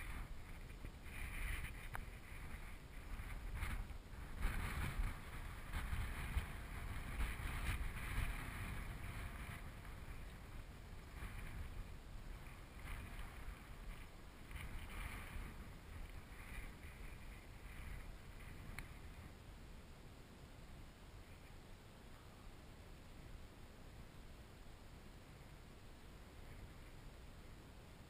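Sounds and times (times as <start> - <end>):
wind buffeting microphone: 0.0 - 19.5.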